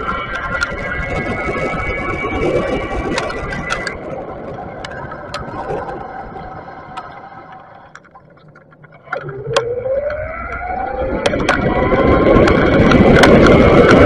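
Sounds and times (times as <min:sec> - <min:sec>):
bicycle clicks and rattles: 0:00.0 - 0:01.2, 0:03.1 - 0:04.1, 0:11.2 - 0:14.0
wind and road rumble: 0:00.0 - 0:14.0
electric motor whine rising: 0:09.2 - 0:14.0.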